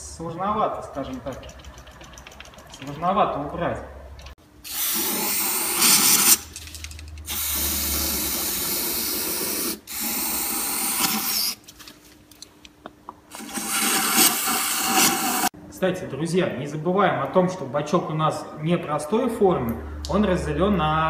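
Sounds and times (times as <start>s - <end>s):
aerosol spray hissing: 4.7s - 6.4s, 7.3s - 11.6s.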